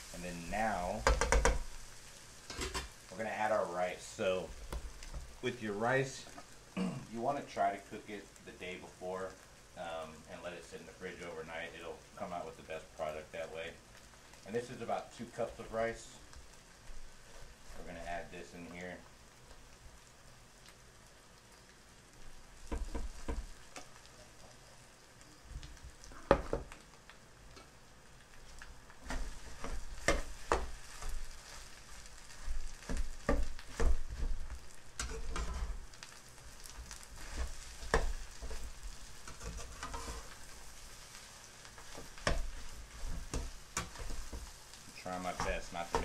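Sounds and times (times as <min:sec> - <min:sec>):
rice sizzling in a pan: 0:00.0 - 0:46.0
metal spatula scraping a pan: 0:35.0 - 0:35.9, 0:36.9 - 0:40.7.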